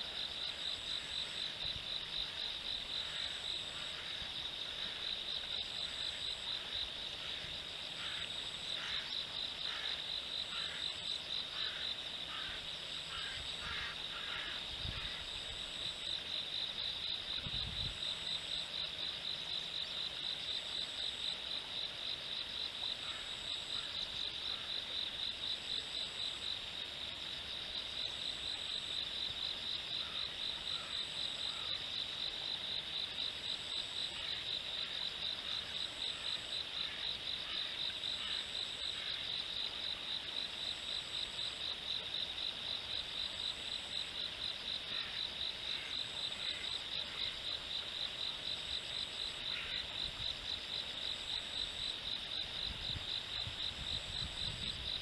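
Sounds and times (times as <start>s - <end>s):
insects trilling: 0.0s - 55.0s
frog croaking: 5.8s - 15.4s, 49.0s - 50.1s.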